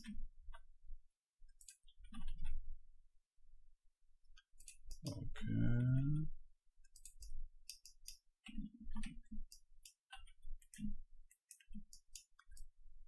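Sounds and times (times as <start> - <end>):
mouse and keyboard clicks: 0.0 - 0.7, 1.5 - 2.6, 4.4 - 5.2, 6.8 - 12.8.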